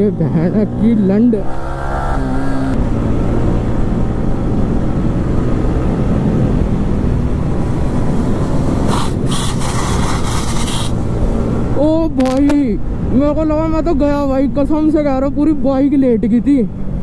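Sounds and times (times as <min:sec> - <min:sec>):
motorcycle engine at speed: 0:00.0 - 0:11.8
wind and road noise: 0:00.0 - 0:17.0.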